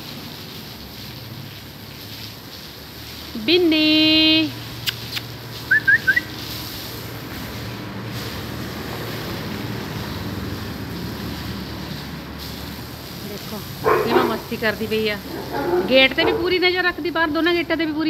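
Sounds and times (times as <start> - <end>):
garden hose spraying water: 0.0 - 18.0
rising chirp-like whistles: 5.7 - 6.3.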